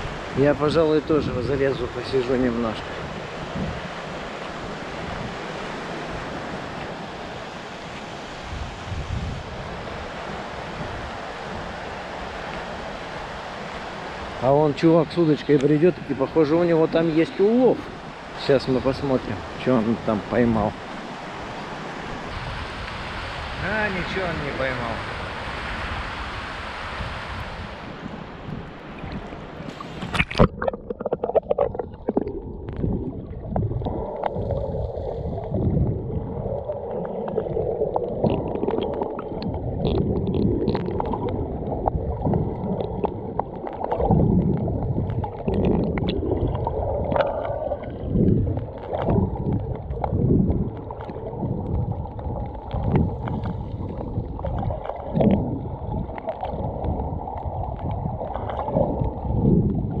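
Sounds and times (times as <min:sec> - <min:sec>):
muffled underwater sloshing: 0:00.0 - 1:00.0
splash with crackling bubbles: 0:28.6 - 1:00.0.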